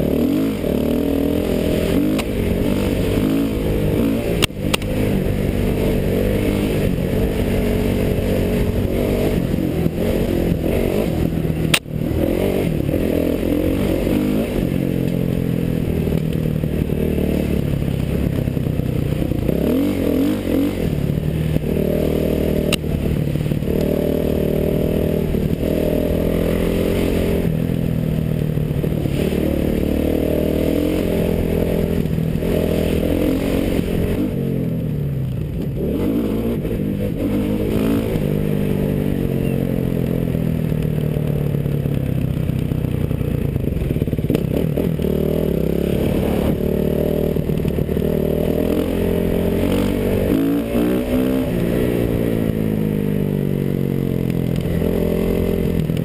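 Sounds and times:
dirt bike engine revving: 0.0 - 42.6, 43.5 - 56.0
sharp clicks: 4.4 - 5.0.

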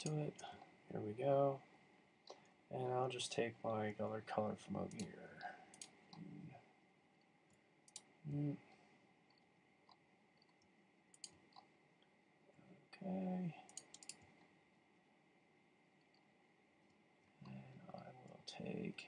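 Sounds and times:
computer mouse clicks: 4.9 - 6.3, 7.5 - 8.1, 9.3 - 11.7, 13.7 - 14.5.

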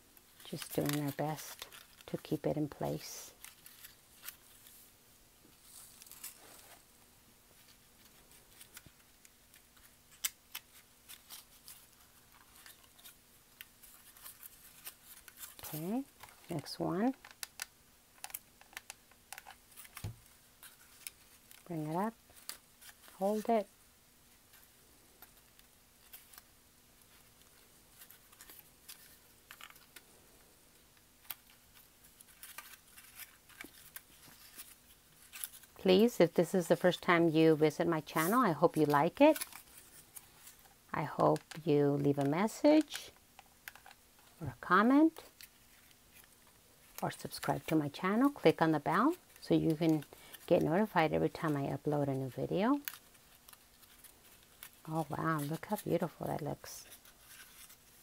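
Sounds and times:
paper crinkling and clicking: 0.4 - 2.2, 2.9 - 4.7, 7.6 - 23.5, 24.5 - 30.1, 31.2 - 44.3, 52.2 - 58.0.

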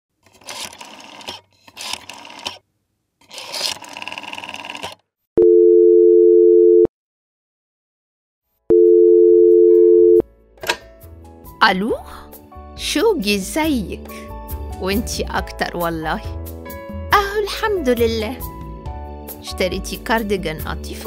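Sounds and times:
telephone ringback tone: 5.4 - 6.9, 8.7 - 10.2.

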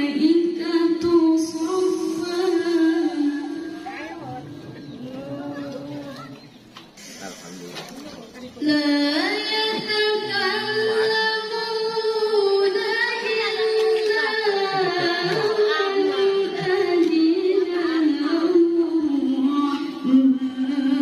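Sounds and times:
woman chanting into a microphone: 0.0 - 6.0, 8.5 - 21.0.

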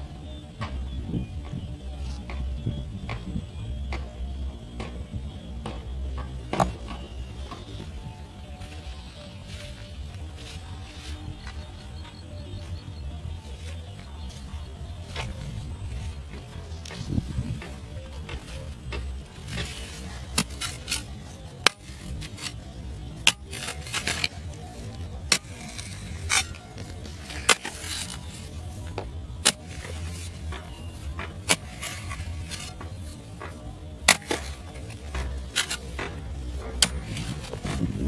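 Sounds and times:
soil scraping: 5.6 - 38.0
metal tool striking earth: 15.9 - 38.0.

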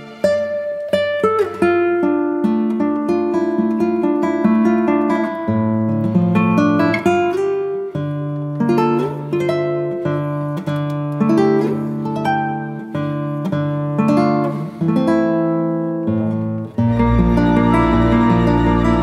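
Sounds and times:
acoustic guitar music: 0.0 - 19.0.

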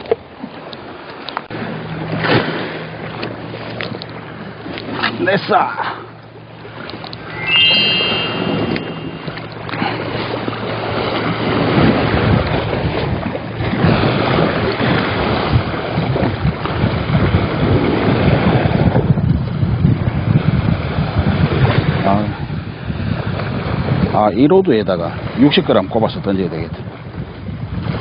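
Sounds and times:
brief high whine: 7.2 - 9.9
wind buffeting microphone: 8.3 - 28.0.

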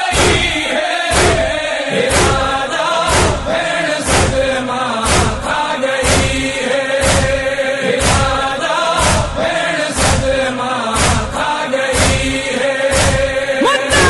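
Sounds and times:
voices chanting a lament: 0.0 - 14.0
heavy beat: 2.1 - 8.4, 11.0 - 14.0.

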